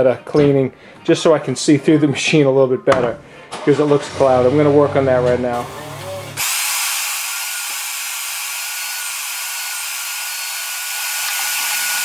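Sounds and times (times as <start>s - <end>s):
shop vac sucking: 3.5s - 12.0s.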